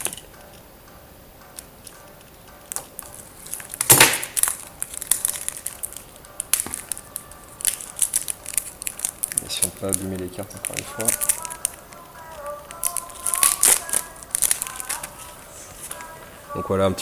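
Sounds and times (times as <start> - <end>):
plastic wrap ripping: 2.7 - 16.0
plastic wrapping crinkling: 2.7 - 16.2.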